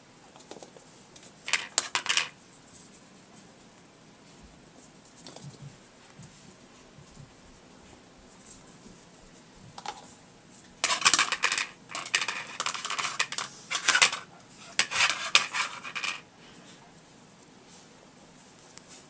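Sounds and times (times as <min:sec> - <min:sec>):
puppy claws scrabbling on tile: 0:00.3 - 0:02.9, 0:05.0 - 0:06.4, 0:10.8 - 0:16.2
plastic toy clattering on tile: 0:01.5 - 0:02.4, 0:10.8 - 0:16.2.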